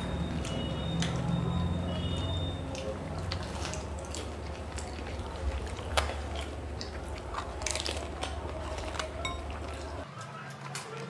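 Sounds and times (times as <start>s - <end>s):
crisp shells crunching: 1.9s - 10.1s.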